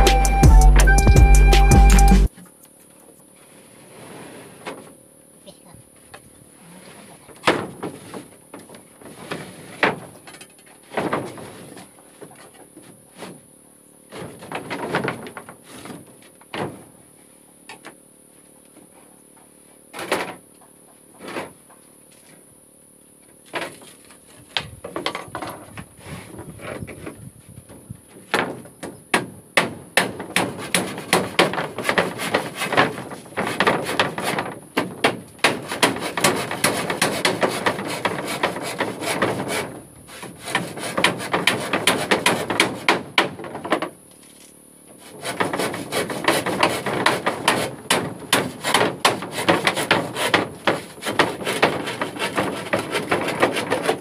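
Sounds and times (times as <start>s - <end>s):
hammer driving nails into wood: 29.1s - 39.4s, 40.5s - 43.3s, 45.3s - 54.0s.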